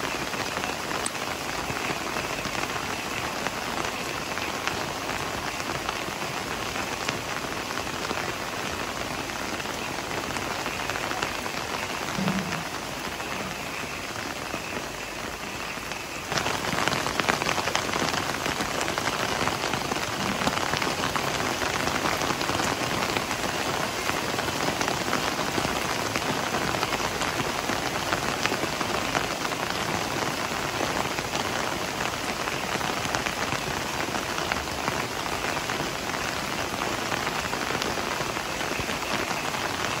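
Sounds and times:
heavy rain falling: 0.0 - 40.0.

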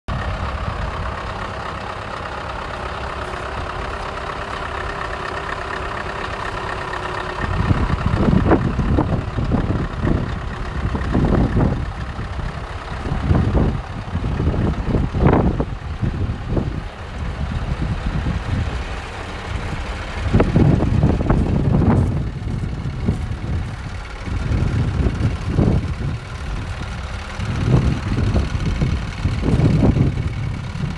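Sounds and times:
truck diesel engine idling: 0.1 - 30.9
wind buffeting microphone: 6.5 - 30.9.

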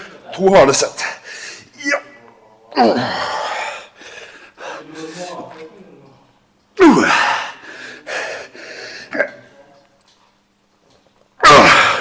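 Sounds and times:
man grunting and crying out: 1.8 - 3.9, 6.8 - 7.6, 11.4 - 12.0.

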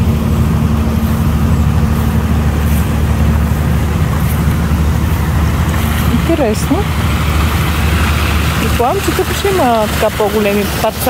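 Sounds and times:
water rushing over small waterfall: 3.3 - 11.0.

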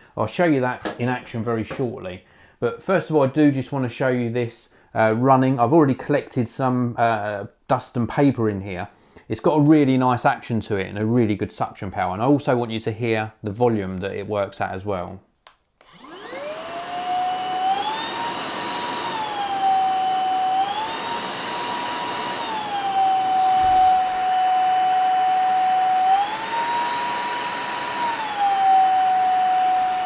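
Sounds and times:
vacuum motor high whine: 15.8 - 30.0.

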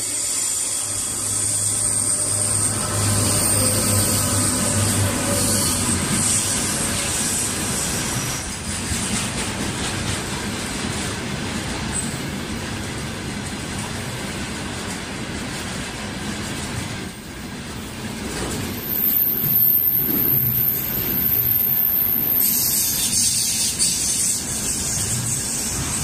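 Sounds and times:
high thin whine: 0.0 - 8.2
train wheels rumbling on rails: 0.0 - 26.0.

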